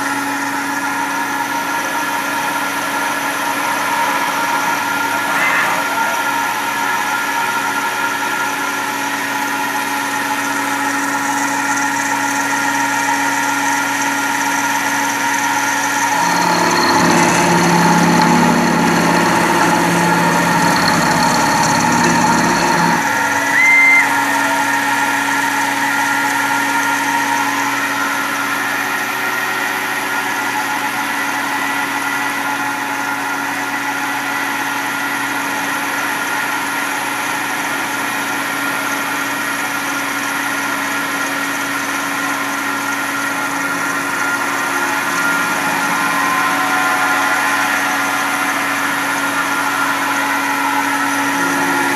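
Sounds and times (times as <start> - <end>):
milling machine cutting metal: 0.0 - 29.4, 37.8 - 51.9
brief high tone: 5.1 - 7.1, 43.7 - 50.0.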